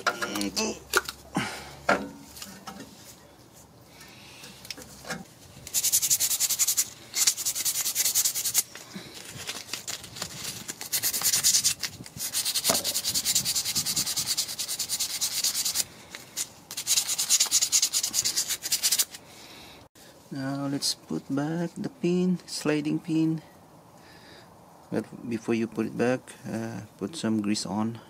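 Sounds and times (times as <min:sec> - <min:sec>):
rapid rubbing strokes: 0:05.6 - 0:08.8, 0:10.4 - 0:19.2.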